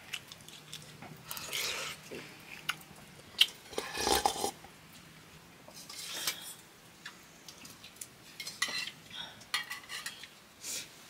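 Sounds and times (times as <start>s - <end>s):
utensils clinking on dishes: 8.4s - 10.3s.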